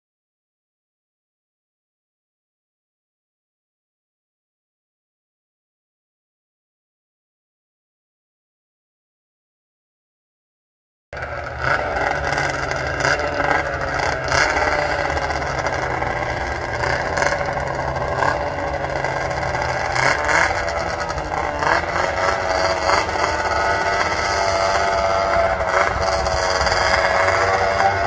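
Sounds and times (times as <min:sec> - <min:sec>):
snowmobile engines racing: 0:11.2 - 0:28.0.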